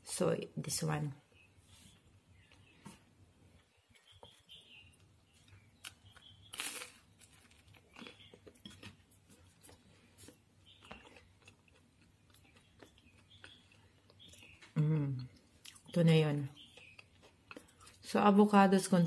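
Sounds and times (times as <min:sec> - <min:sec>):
chewing with wet mouth clicks: 0:03.9 - 0:18.1.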